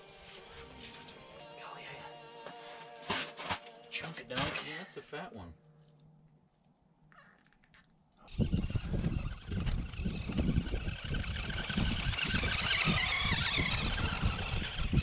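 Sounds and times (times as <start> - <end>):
toy car motors running: 8.3 - 15.0
wind on microphone: 8.3 - 15.0.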